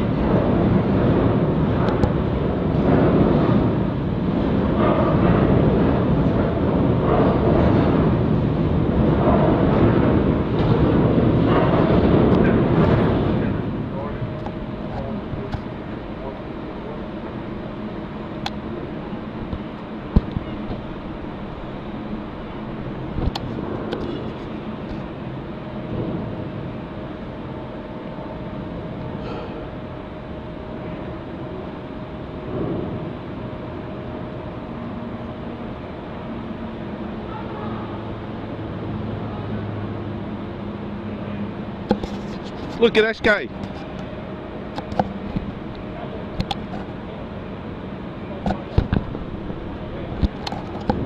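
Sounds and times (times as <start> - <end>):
wind buffeting microphone: 0.0 - 27.9
churning floodwater: 0.0 - 28.9
low hum: 0.0 - 51.0.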